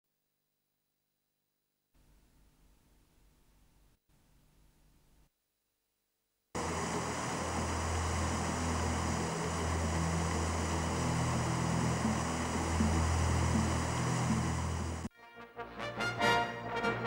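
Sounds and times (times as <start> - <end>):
low steady drone: 6.6 - 15.1
water pouring over a weir: 6.6 - 15.1.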